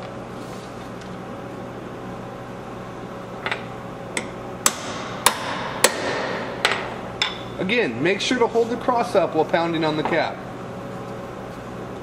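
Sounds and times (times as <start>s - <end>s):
hammer striking metal: 4.6s - 7.6s.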